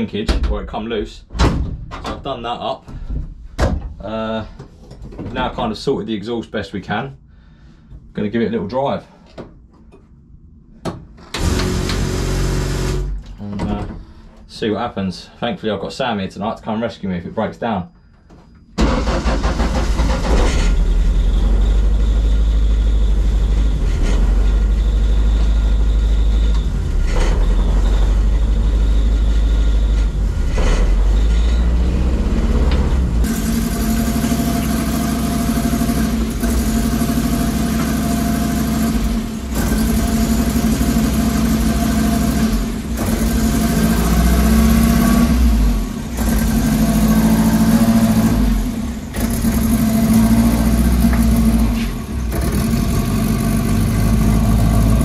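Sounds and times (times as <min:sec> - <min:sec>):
turbocharged car engine running: 0:19.0 - 0:55.0.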